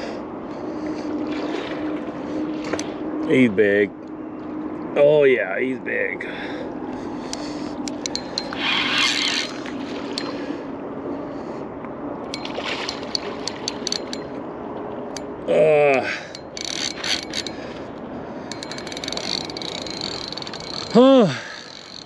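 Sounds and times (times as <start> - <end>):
fishing reel clicking: 7.3 - 10.4, 12.3 - 14.4, 16.2 - 17.8, 18.5 - 22.0
man groaning: 15.4 - 16.3, 20.9 - 21.5.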